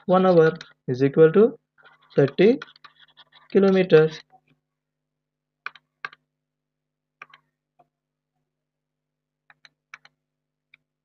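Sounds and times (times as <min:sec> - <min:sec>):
computer mouse clicks: 0:05.6 - 0:06.2, 0:07.2 - 0:07.9, 0:09.5 - 0:10.8.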